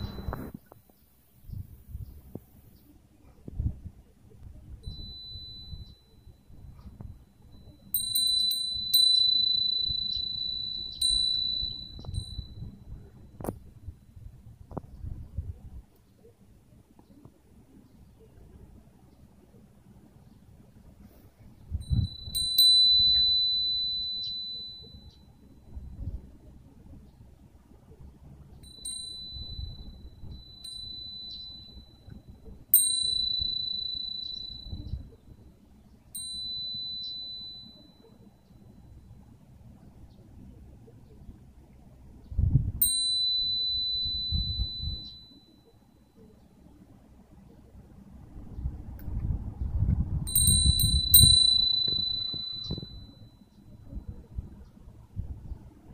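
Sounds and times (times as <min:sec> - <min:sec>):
wind bell ringing: 0:00.0 - 0:00.5, 0:04.8 - 0:14.4, 0:21.7 - 0:26.3, 0:28.6 - 0:39.4, 0:42.8 - 0:46.3, 0:50.2 - 0:54.4.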